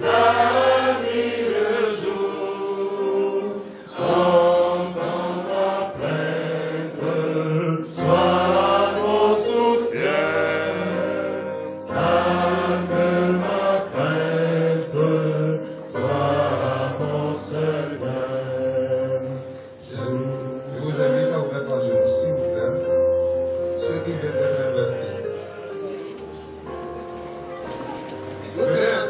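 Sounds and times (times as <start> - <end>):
group singing a slow hymn: 0.0 - 21.2.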